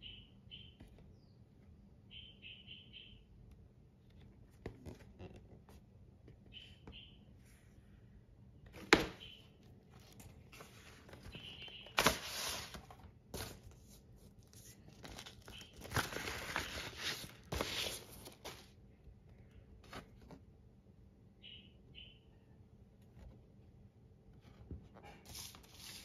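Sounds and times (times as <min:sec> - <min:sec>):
paper sleeve rustling and sliding: 0:10.0 - 0:18.7, 0:25.2 - 0:26.0.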